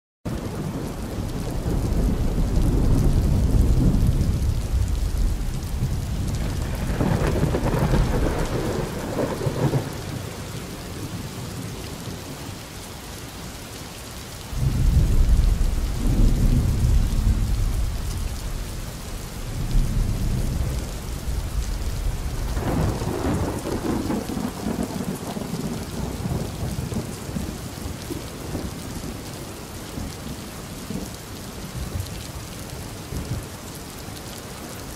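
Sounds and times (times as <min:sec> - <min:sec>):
steady rain: 0:00.3 - 0:34.9
rolling thunder: 0:00.6 - 0:10.6, 0:14.6 - 0:29.2.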